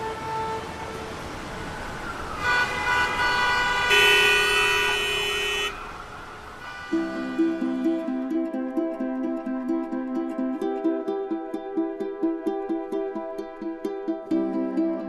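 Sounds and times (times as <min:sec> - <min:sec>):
city street traffic: 0:00.0 - 0:15.0
car horns honking: 0:02.4 - 0:05.9, 0:06.6 - 0:07.6
light plucked-string music: 0:06.9 - 0:15.0.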